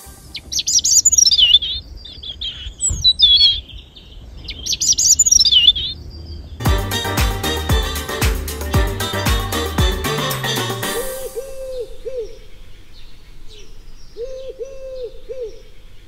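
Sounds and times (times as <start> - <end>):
background music with steady beat: 0.0 - 1.0, 6.6 - 11.8.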